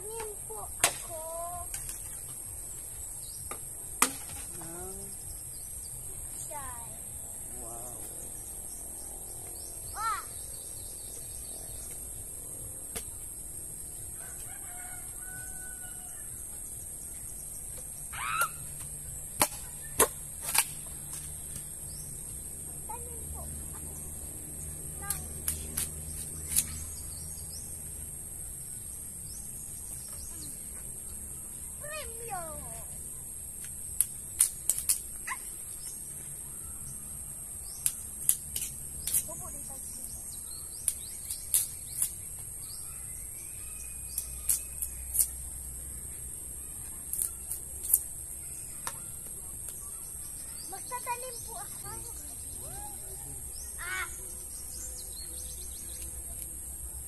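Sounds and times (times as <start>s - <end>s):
high insect drone: 0.0s - 57.0s
machete striking bamboo: 0.2s - 2.2s, 3.5s - 4.6s, 19.3s - 21.8s
distant rooster crowing: 14.1s - 16.5s.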